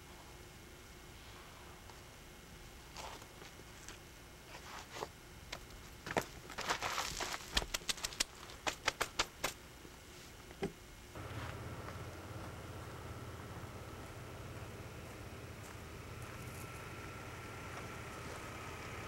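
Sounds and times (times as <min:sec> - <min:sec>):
steady low hum: 0:00.0 - 0:19.0
sneakers scuffing on rock: 0:06.0 - 0:09.5.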